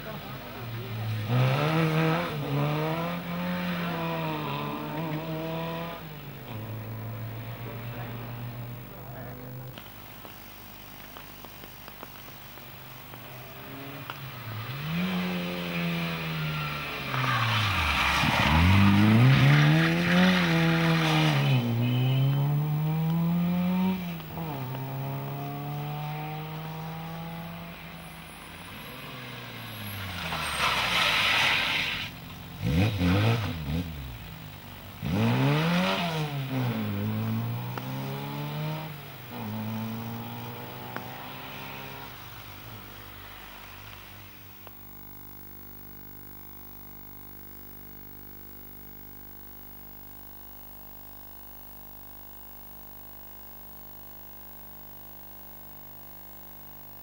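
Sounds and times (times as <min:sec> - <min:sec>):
rally car engines revving past: 0:00.0 - 0:10.0, 0:11.9 - 0:44.7
tyres hissing on wet road: 0:09.8 - 0:44.7.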